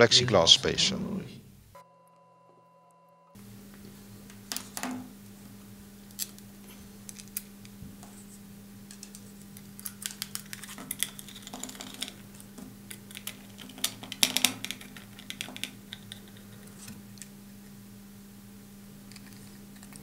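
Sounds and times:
small parts clicking on a table: 10.0 - 16.9.

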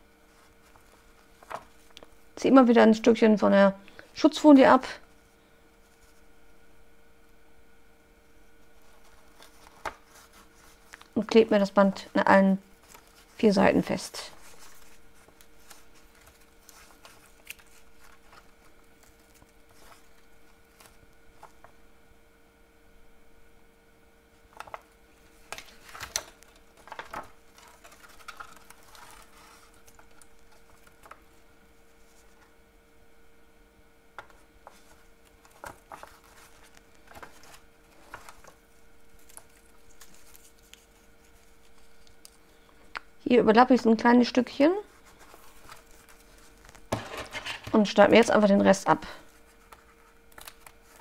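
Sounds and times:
faint steady hum: 0.0 - 51.0
paper rustling: 0.3 - 2.0, 8.6 - 21.8, 24.5 - 32.5, 34.2 - 42.8, 44.9 - 48.3, 49.3 - 51.0.

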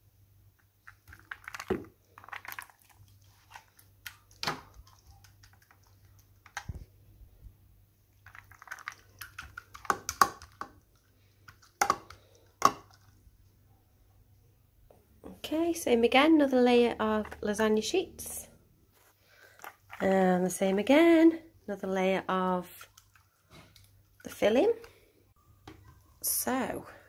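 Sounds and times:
wet food squelching and scraping: 0.8 - 7.5, 8.1 - 13.4, 18.9 - 21.1, 22.6 - 25.1
plastic cup clicks and knocks: 11.8 - 12.9.

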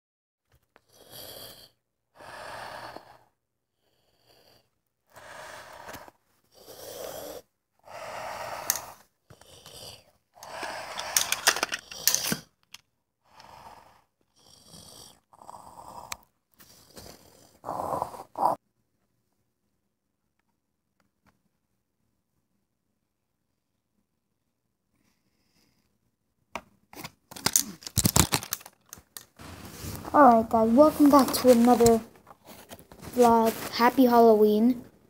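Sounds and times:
heavy breathing through a mask: 1.0 - 12.4.

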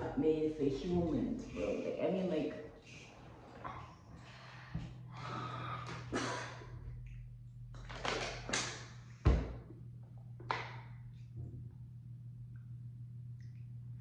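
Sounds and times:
breathy noises: 2.8 - 6.8.

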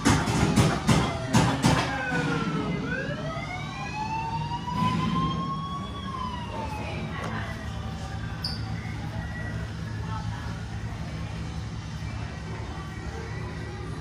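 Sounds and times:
siren-like wailing tone: 1.8 - 10.3.

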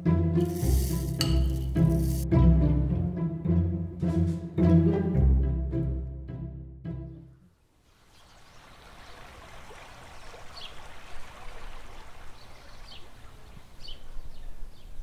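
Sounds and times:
running water: 0.4 - 2.3, 7.8 - 13.8.

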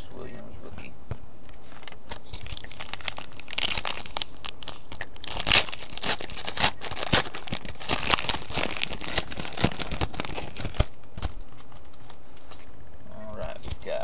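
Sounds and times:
wrapper crinkling and tearing: 1.7 - 12.7.

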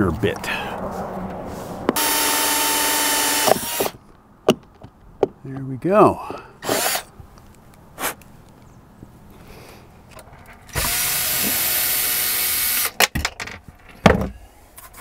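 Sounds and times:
power drill boring: 2.0 - 4.0, 6.6 - 7.1, 10.7 - 12.9.

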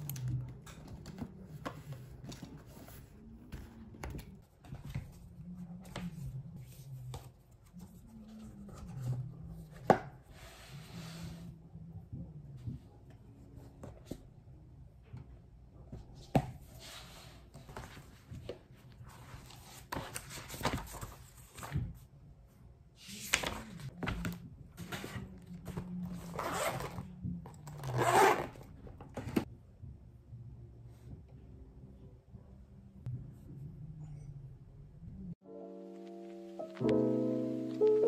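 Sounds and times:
notebook pages rustling: 16.3 - 22.0, 23.0 - 27.1
pencil case zipper: 26.1 - 29.4.

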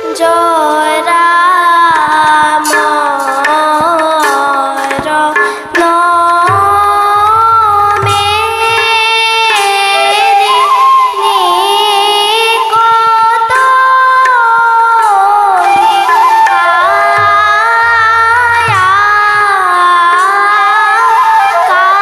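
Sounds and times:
bamboo flute: 0.0 - 5.5, 6.4 - 22.0
girl singing: 0.0 - 22.0
harmonium: 0.0 - 22.0
low drum strokes: 6.3 - 10.1, 16.8 - 20.3.

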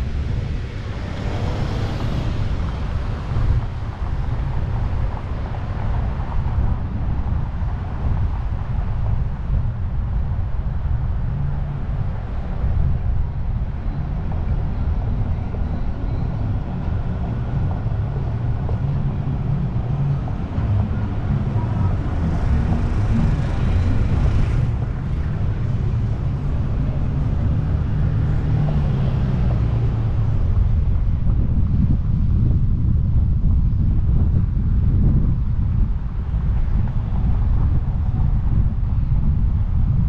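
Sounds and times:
road and engine noise: 0.0 - 40.0
wind buffeting microphone: 0.0 - 40.0.

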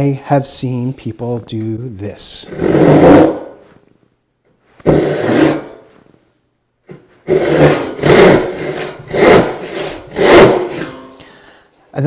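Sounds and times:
hand saw rasping through wood: 2.5 - 3.5, 4.9 - 5.8, 7.2 - 11.2.

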